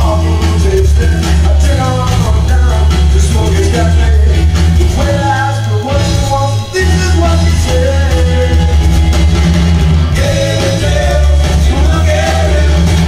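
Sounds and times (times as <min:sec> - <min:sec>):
garage rock song: 0:00.0 - 0:13.0
steady bass line: 0:00.0 - 0:13.0.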